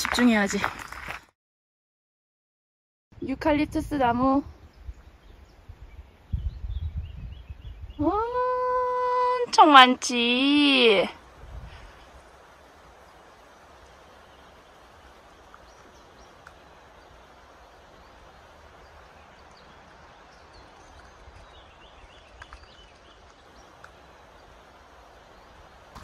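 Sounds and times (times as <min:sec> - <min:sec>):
wind on microphone: 0:03.2 - 0:09.3, 0:11.2 - 0:12.3
small birds chirping: 0:03.2 - 0:11.1, 0:11.7 - 0:26.0.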